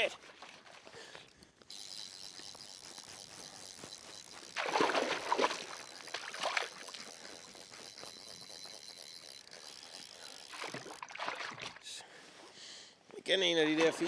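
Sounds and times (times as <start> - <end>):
faint lapping water: 0.0 - 12.4
fish thrashing and splashing: 1.5 - 11.8.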